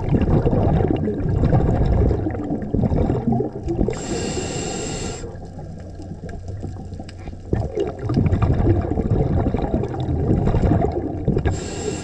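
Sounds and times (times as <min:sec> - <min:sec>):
bubbling exhaled air underwater: 0:00.0 - 0:12.0.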